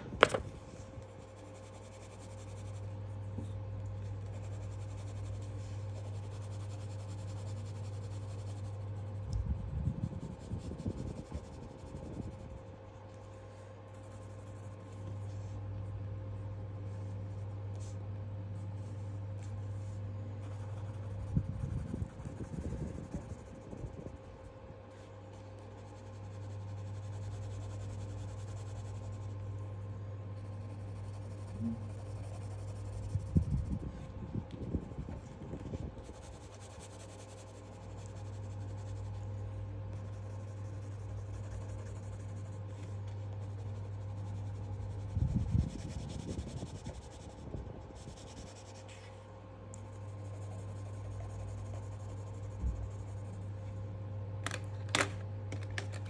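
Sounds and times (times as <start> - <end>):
steady low hum: 0.0 - 56.0
pencil scratching on paper: 1.2 - 9.2, 10.2 - 12.5, 13.4 - 15.5, 18.6 - 24.3, 25.3 - 29.6, 30.4 - 33.8, 34.8 - 49.2, 49.8 - 53.6.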